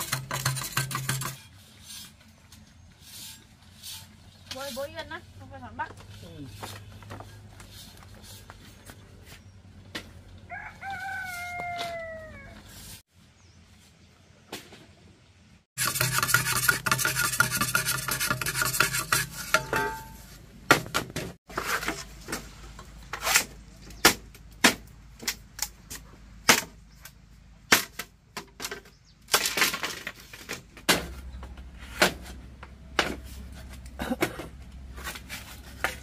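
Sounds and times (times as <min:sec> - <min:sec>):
knife scraping bamboo: 0:00.0 - 0:05.1, 0:06.0 - 0:08.9, 0:15.8 - 0:20.4, 0:21.5 - 0:24.2
rooster crowing: 0:10.5 - 0:12.6
knife chopping bamboo: 0:24.0 - 0:26.8.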